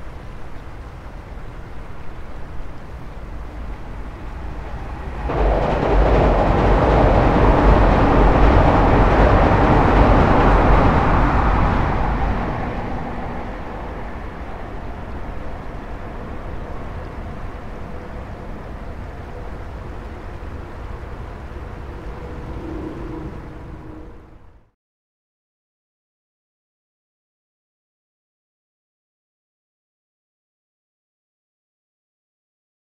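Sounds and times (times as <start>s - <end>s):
river flowing: 0.0s - 24.5s
train crossing steel bridge: 0.0s - 24.7s.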